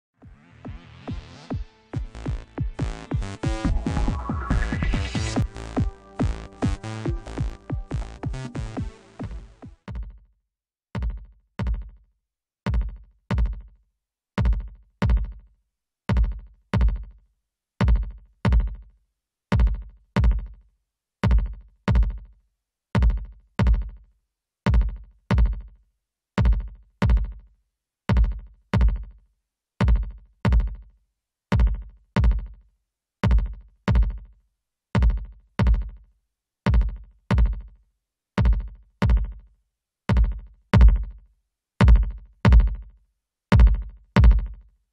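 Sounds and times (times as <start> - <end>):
drum machine kick drum: 0.2 - 10.2, 11.0 - 12.0, 12.6 - 13.8, 14.4 - 15.5, 16.1 - 17.2, 17.8 - 18.9, 19.5 - 20.6, 21.2 - 22.3, 23.0 - 24.0, 24.7 - 25.8, 26.4 - 27.5, 28.1 - 29.2, 29.8 - 30.9, 31.5 - 32.6, 33.2 - 34.4, 35.0 - 36.0, 36.7 - 37.8, 38.4 - 39.5, 40.1 - 41.2, 41.8 - 44.7.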